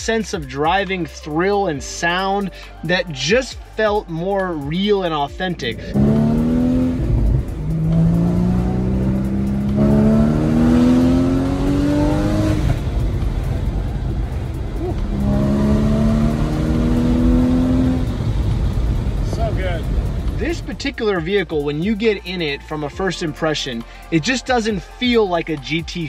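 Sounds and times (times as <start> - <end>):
car engine accelerating hard: 5.6 - 21.2.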